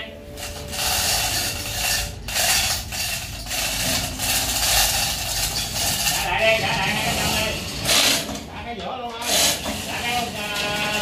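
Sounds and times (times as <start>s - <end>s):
chain rattling through hoist block: 0.6s - 6.4s.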